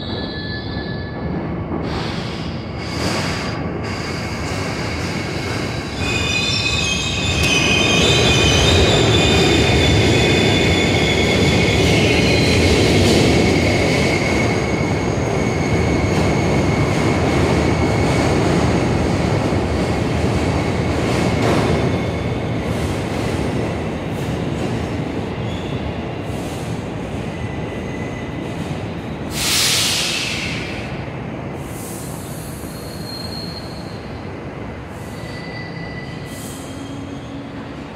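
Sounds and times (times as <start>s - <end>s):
train wheels rumbling on rail: 0.0s - 37.9s
high wheel squeal: 5.7s - 12.6s, 32.6s - 34.0s, 35.1s - 37.5s.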